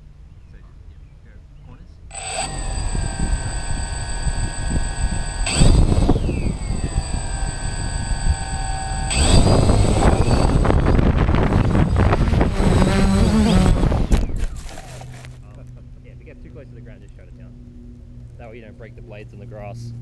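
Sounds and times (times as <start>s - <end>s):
drone propellers whining: 2.1s - 15.4s.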